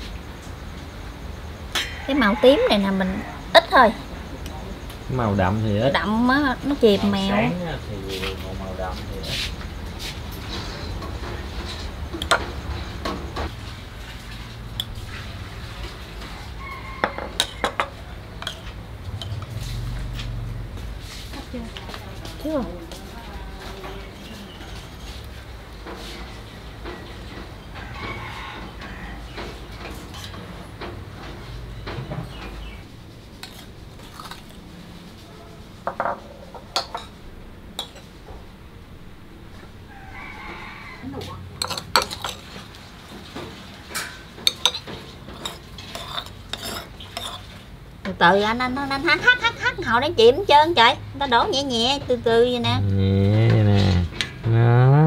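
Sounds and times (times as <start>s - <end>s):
metal spoons clinking on bowls: 17.0s - 19.4s, 41.6s - 42.5s, 43.9s - 47.5s.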